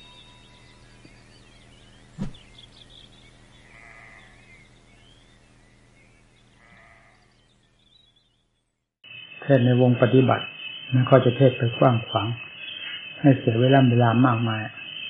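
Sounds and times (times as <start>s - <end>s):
low hum: 0.0s - 8.8s
faint chirping: 0.0s - 15.0s
sharp knock: 2.2s - 2.5s
bleat-like animal call: 3.6s - 4.4s, 6.6s - 7.2s.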